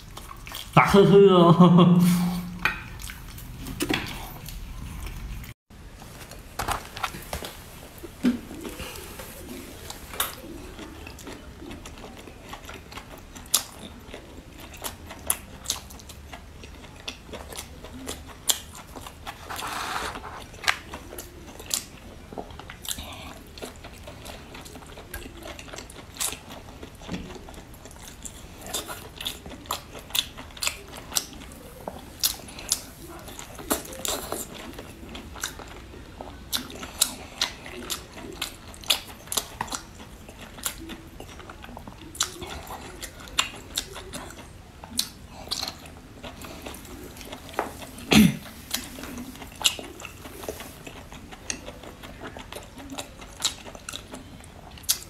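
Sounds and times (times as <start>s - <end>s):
wet chewing mouth sounds: 8.2s - 55.0s.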